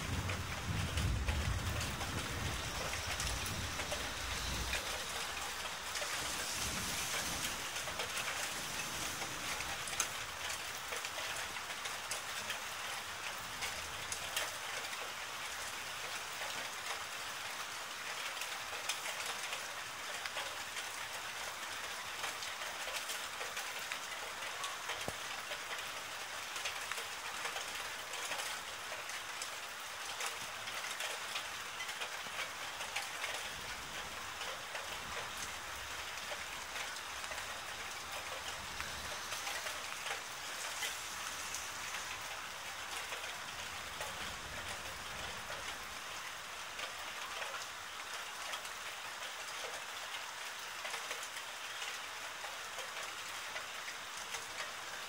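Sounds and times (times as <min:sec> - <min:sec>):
thunder rumble: 0:00.0 - 0:10.5
steady rain falling: 0:00.0 - 0:55.0.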